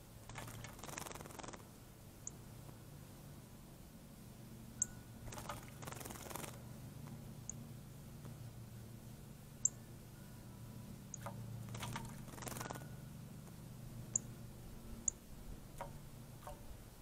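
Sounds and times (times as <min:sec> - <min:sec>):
bird splashing and fluttering: 0:00.2 - 0:01.7, 0:05.2 - 0:07.2, 0:11.1 - 0:13.6, 0:15.6 - 0:16.8.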